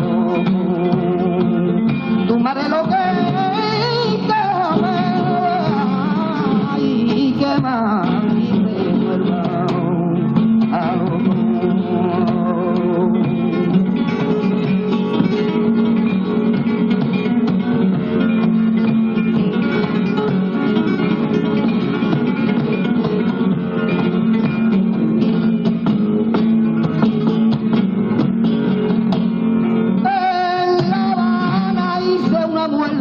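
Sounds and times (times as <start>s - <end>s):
person singing: 0.0s - 15.7s, 30.0s - 33.0s
flamenco guitar playing: 0.0s - 33.0s.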